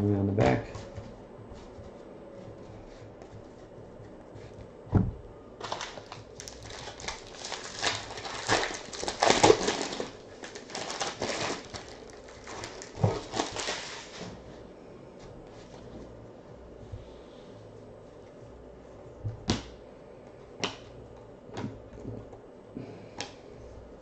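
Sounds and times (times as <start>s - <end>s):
foil wrapper crinkling and tearing: 5.6s - 14.3s.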